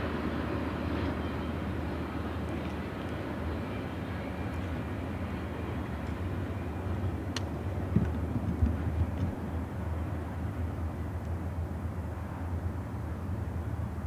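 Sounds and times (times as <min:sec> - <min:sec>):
distant freight train rumbling: 0:00.0 - 0:14.0.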